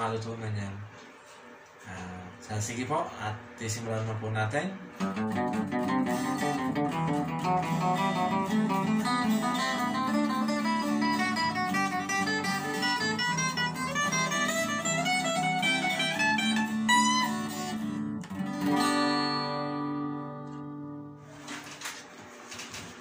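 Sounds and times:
acoustic guitar music: 4.9 - 22.6.

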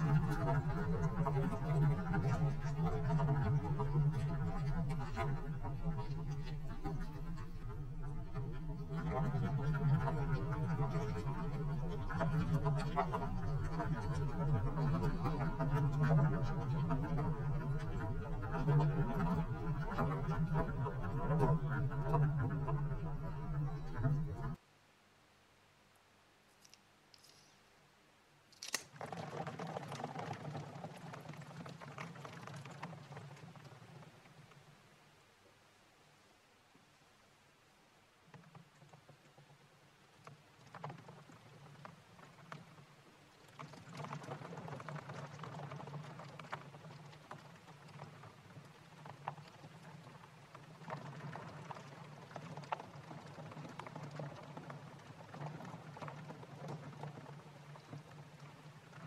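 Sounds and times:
low steady hum: 0.0 - 26.4.

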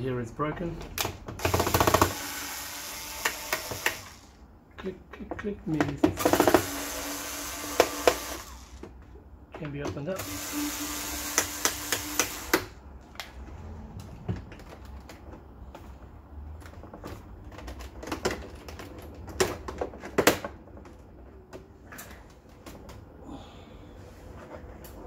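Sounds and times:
cordless screwdriver whirring: 1.4 - 4.3, 6.2 - 8.8, 10.2 - 12.7.

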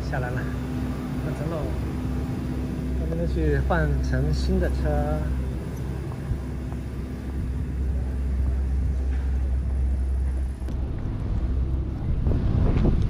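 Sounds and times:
chairlift machinery rumble: 0.0 - 13.0.

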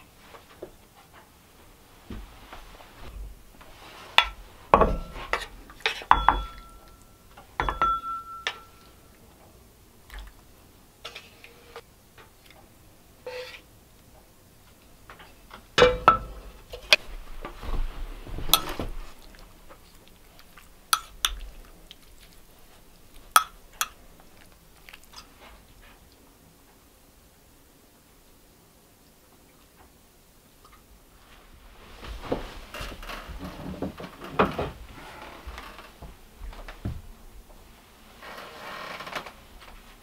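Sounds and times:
wooden spoon knocking on pans: 4.2 - 8.8, 15.8 - 16.5, 23.3 - 24.0.

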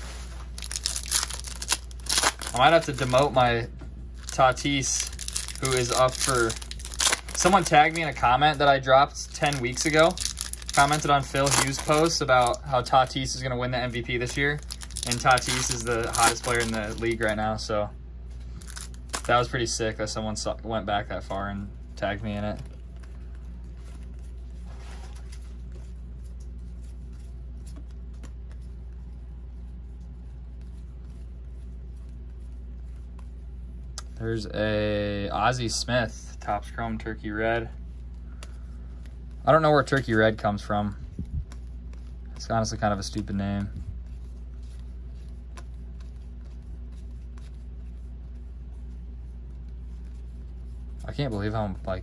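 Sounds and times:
trading cards rustling: 0.0 - 17.5, 18.3 - 19.5, 38.1 - 52.0
steady low hum: 0.0 - 52.0.

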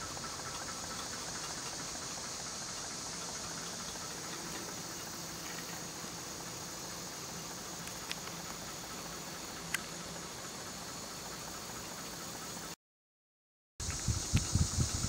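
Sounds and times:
fan hissing and whirring: 0.0 - 12.8, 13.8 - 15.0.

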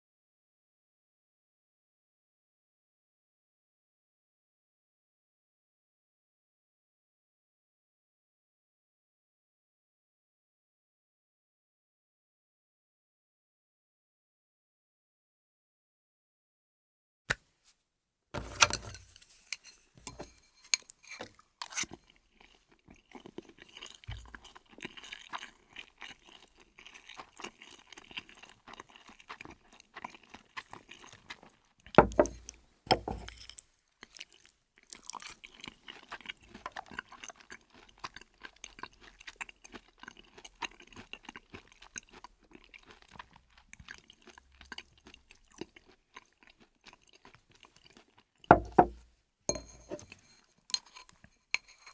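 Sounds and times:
person chewing and crunching food: 18.4 - 51.9
thumps: 32.0 - 33.3, 48.5 - 50.0.

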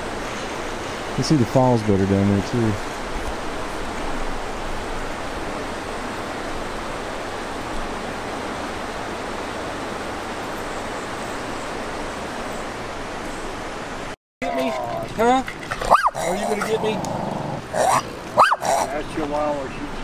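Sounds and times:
river water rushing over rapids: 0.0 - 14.1.

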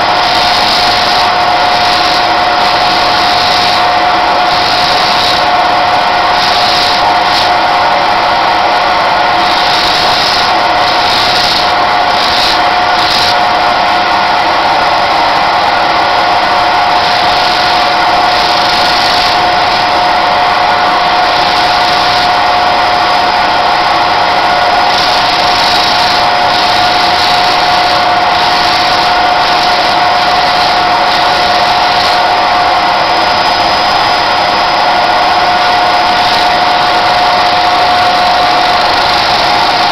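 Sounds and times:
sanding disc motor whine: 0.0 - 39.9
bone rasping on sanding disc: 9.4 - 13.4, 24.8 - 32.3.

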